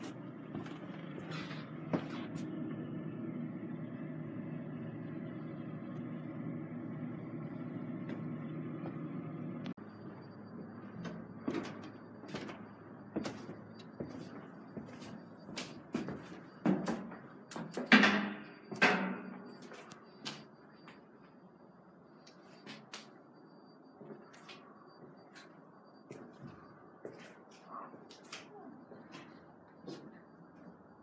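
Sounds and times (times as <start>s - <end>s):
knocks clicks and clunks: 15.5s - 19.5s.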